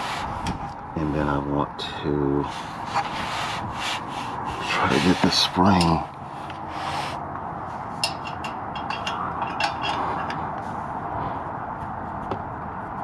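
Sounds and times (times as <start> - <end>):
steady background hiss: 0.0 - 11.4
light metal scrapes: 2.4 - 11.0
small metal clicks: 8.0 - 10.6.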